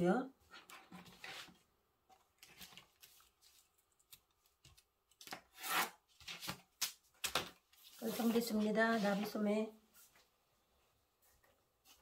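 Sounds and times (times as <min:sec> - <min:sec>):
paper rustling on table: 0:00.5 - 0:09.4.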